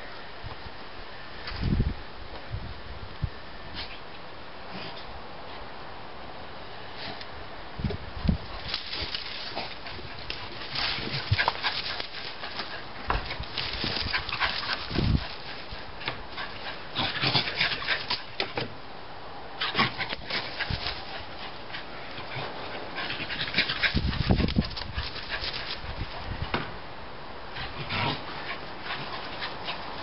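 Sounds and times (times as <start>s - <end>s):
dog scrabbling in soil: 8.5s - 18.4s, 19.6s - 21.6s, 22.2s - 26.3s
dog snuffling and panting: 9.4s - 18.3s, 19.6s - 26.2s.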